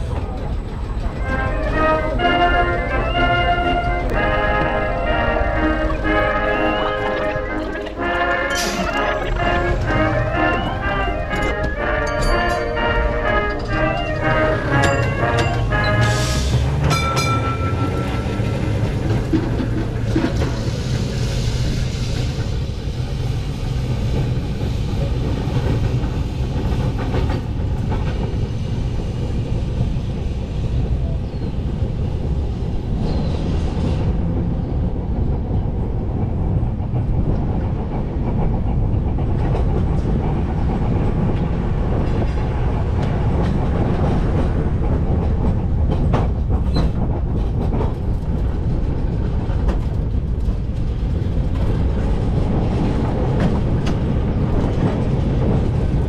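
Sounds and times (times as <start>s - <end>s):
tram wheels rumbling on rails: 0.0s - 56.0s.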